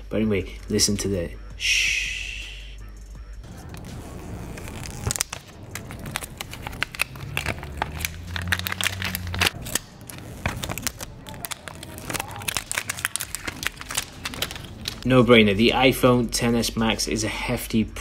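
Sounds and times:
plastic film being peeled: 3.5 - 15.2.

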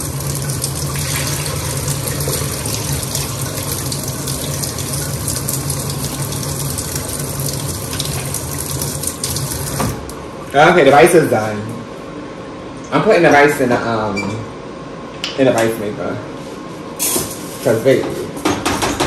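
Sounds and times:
tap water running into bowl: 0.0 - 10.1.

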